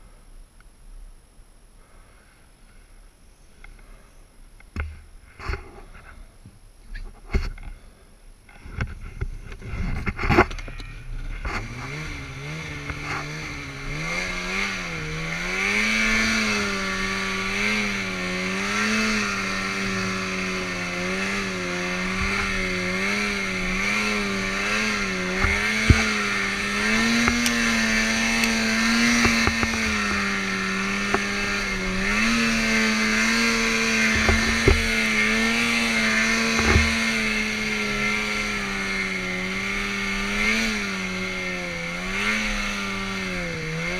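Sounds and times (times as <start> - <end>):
snowmobile engine revving: 9.5 - 43.9.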